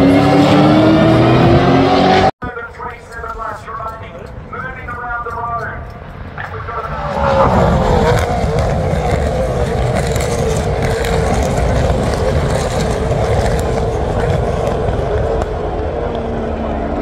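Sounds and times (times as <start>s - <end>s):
race cars passing at speed: 0.0s - 2.3s, 6.0s - 17.0s.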